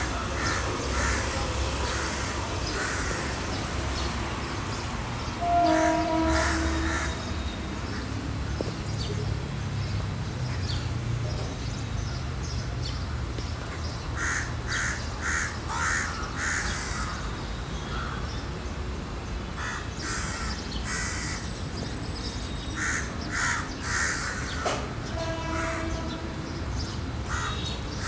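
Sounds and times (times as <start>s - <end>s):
crows cawing: 0.0s - 3.5s, 5.6s - 7.3s, 14.2s - 17.2s, 19.6s - 21.4s, 22.8s - 24.8s, 25.5s - 26.0s, 27.3s - 27.7s
outdoor background noise: 0.0s - 28.0s.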